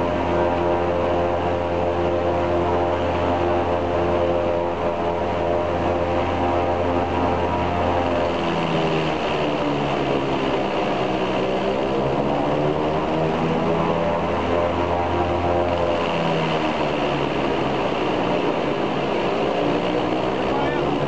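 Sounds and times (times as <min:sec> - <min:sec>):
radial engine and propeller drone: 0:00.0 - 0:21.0.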